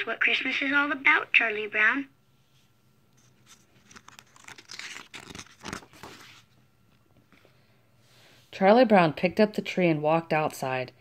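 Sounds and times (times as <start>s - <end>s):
book page turning: 3.2s - 6.6s.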